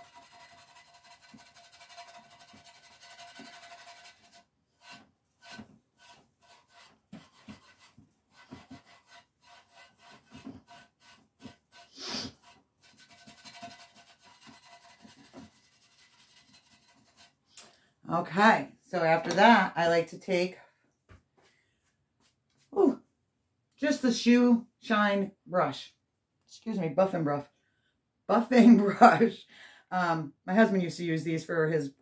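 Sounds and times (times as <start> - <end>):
steel wool rubbing: 0.0 - 17.4.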